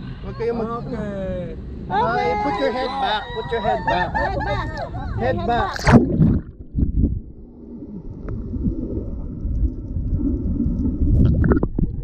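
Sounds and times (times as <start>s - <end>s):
muffled underwater water sloshing: 5.6s - 12.0s.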